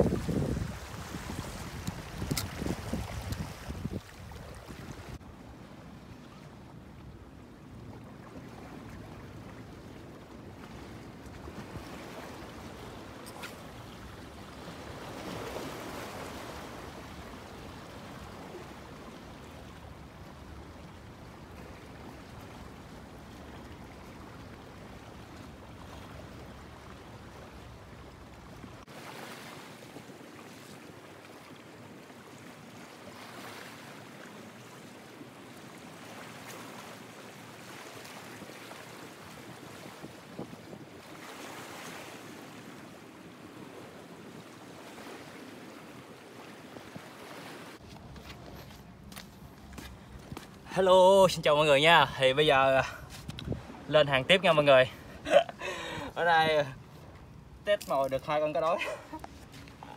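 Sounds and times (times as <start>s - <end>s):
wind rumbling on microphone: 0.0s - 5.4s, 39.4s - 41.1s, 53.0s - 53.9s
sea noise: 0.0s - 59.9s.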